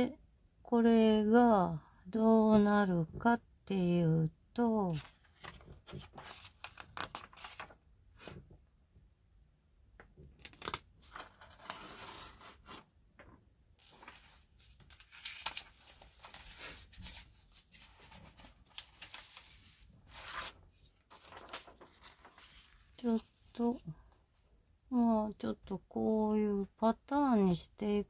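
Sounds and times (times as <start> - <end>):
paper rustling: 4.9 - 8.4, 10.4 - 12.8, 13.8 - 23.6.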